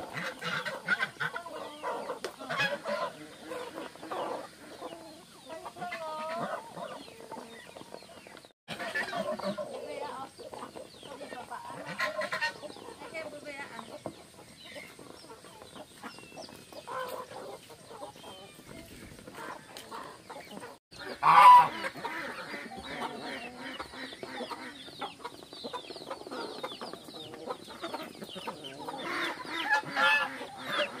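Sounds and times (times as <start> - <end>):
chickens clucking: 0.0 - 31.0.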